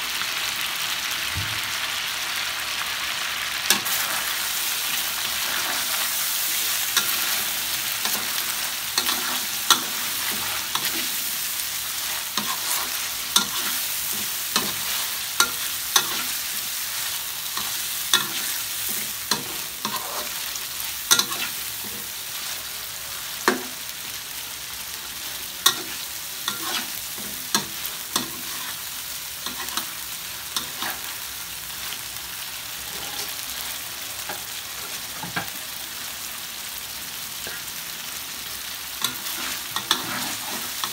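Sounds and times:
food sizzling in a wok: 0:00.0 - 0:40.9
metal spatula scraping pan: 0:17.5 - 0:20.5.

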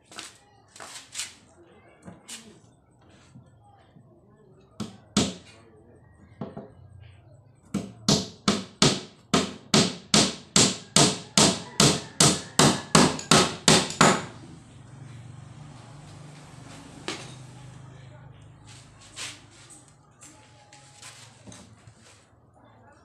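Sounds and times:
hammer striking a nail into wood: 0:04.8 - 0:05.5, 0:07.8 - 0:14.4.

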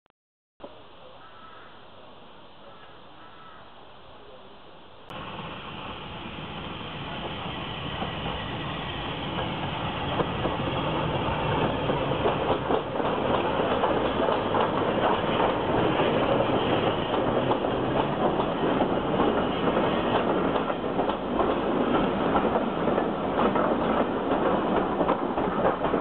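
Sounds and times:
steam locomotive passing: 0:05.1 - 0:26.0
train wheels clicking over rail joints: 0:07.1 - 0:26.0.

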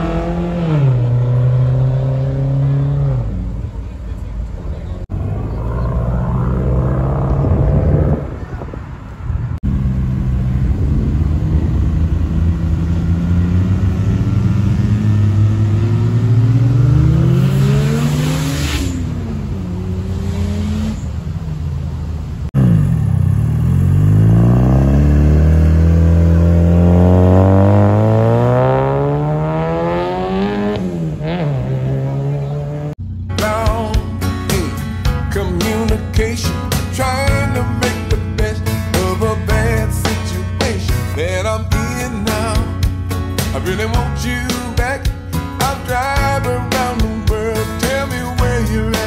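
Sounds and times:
car engines revving: 0:00.0 - 0:33.4.

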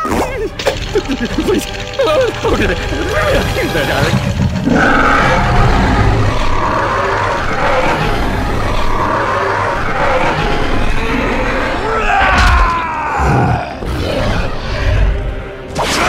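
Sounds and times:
creature roaring: 0:04.6 - 0:15.2.

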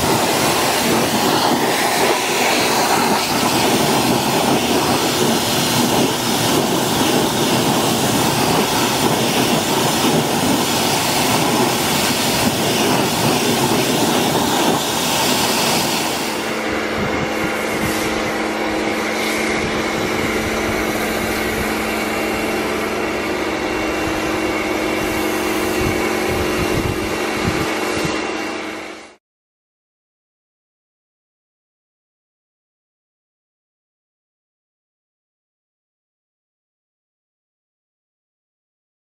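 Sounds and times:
foam lance spraying: 0:00.0 - 0:16.7, 0:17.3 - 0:27.9
pressure washer jet hissing: 0:00.0 - 0:29.1
pressure washer motor humming: 0:00.0 - 0:29.2.

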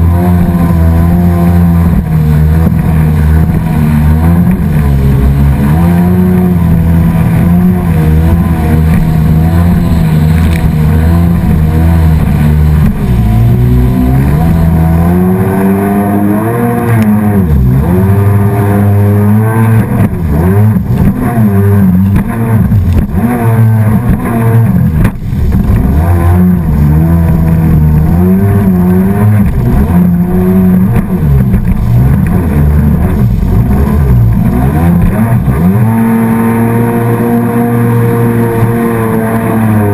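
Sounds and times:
motorboat engine running: 0:00.0 - 0:39.9.

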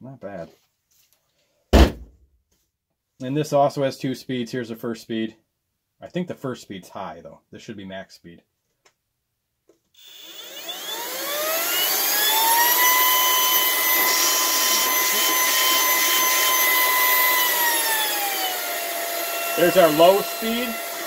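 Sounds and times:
vacuum motor whine: 0:10.0 - 0:21.0.

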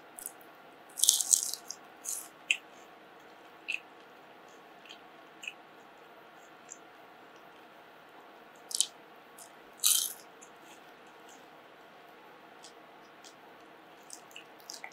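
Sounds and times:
fried potato crunching: 0:00.0 - 0:02.6, 0:08.6 - 0:10.8, 0:14.0 - 0:14.9.

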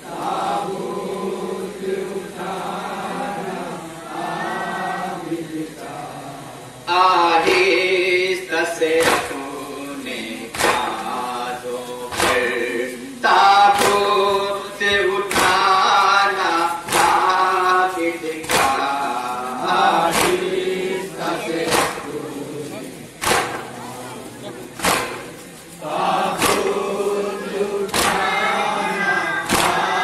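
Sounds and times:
men singing a lament: 0:00.0 - 0:30.0
crowd beating chests: 0:08.8 - 0:30.0.

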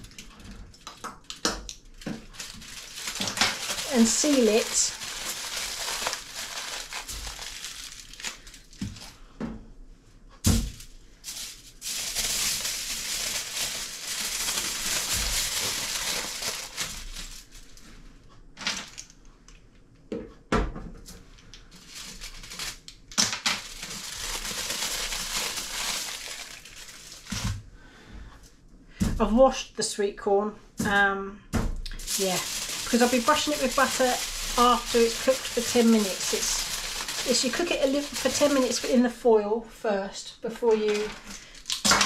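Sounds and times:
aluminium foil crinkling: 0:00.0 - 0:09.2, 0:10.6 - 0:17.9, 0:21.6 - 0:27.6, 0:31.9 - 0:39.2, 0:40.5 - 0:42.0.

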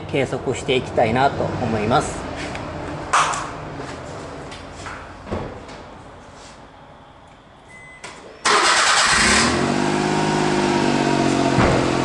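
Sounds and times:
faint beep: 0:07.0 - 0:08.4
car engine starting and idling: 0:08.4 - 0:12.0.

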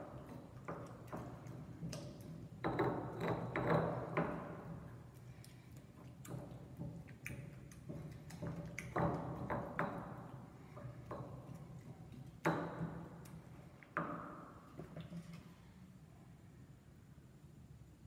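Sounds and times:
stone pestle knocking and grinding: 0:00.0 - 0:05.1, 0:06.2 - 0:13.4.

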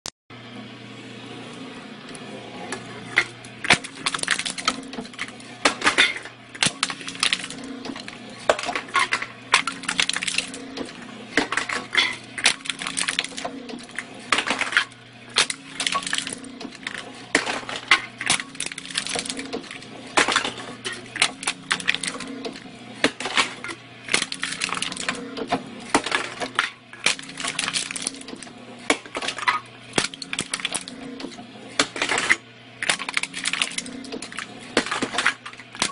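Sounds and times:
pulsing motor hum: 0:00.3 - 0:35.9
drink can being crushed: 0:03.6 - 0:13.5, 0:14.3 - 0:25.2, 0:25.9 - 0:31.0, 0:31.8 - 0:35.9.

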